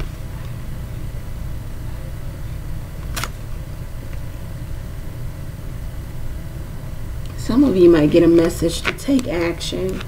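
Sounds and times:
low background rumble: 0.0 - 10.0
card snap: 3.0 - 3.4.

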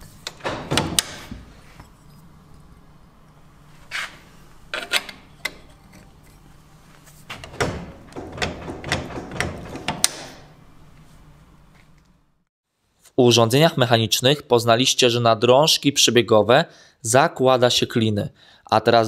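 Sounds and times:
metal lever clicks and knocks: 7.3 - 10.4.

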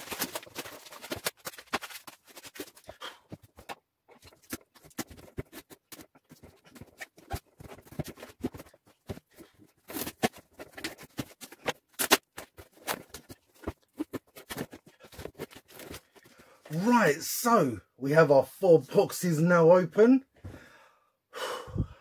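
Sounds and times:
cardboard boxes handled: 0.0 - 16.5.

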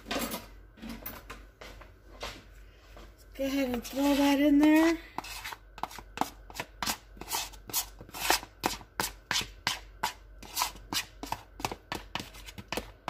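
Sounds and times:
utensil scraping and tapping bowl: 3.5 - 13.0.

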